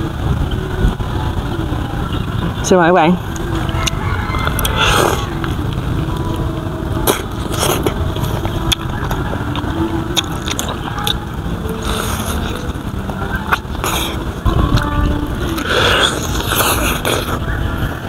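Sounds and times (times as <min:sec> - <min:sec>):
low rumble: 0:00.0 - 0:18.0
chewing and mouth smacks: 0:07.0 - 0:11.2.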